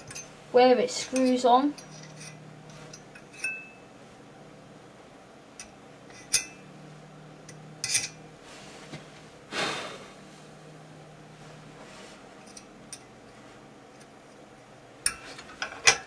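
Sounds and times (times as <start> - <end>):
scraping rub: 11.3 - 12.6.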